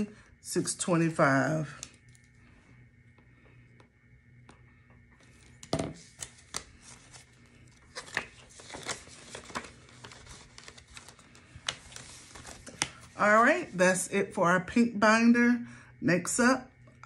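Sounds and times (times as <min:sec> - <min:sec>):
paper and plastic rustling: 0:05.2 - 0:13.5.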